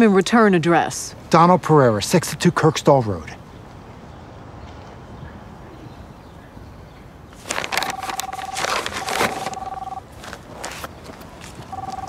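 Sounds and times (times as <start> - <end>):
loud rustling: 7.4 - 12.0
cell phone ringing: 7.7 - 10.1, 11.6 - 12.0.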